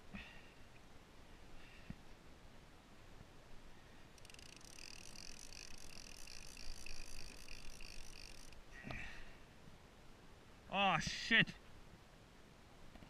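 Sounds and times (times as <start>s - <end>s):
wind: 0.0s - 13.0s
sea noise: 3.8s - 8.8s
fishing reel drag buzzing: 4.2s - 8.6s.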